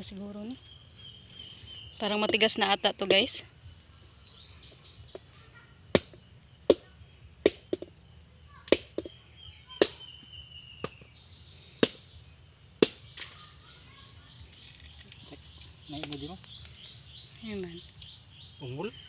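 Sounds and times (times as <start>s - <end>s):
machete chopping: 5.9s - 7.9s, 9.8s - 10.0s, 10.8s - 11.0s, 11.8s - 12.1s, 12.8s - 13.4s.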